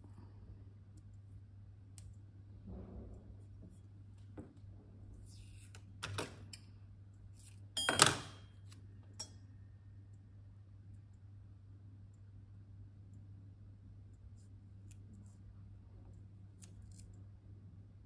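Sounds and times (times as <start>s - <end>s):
low hum: 0.0s - 5.8s.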